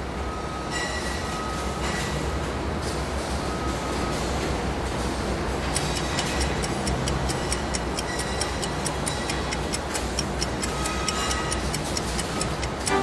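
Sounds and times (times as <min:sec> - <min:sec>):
clock-like ticking: 0:05.7 - 0:13.0.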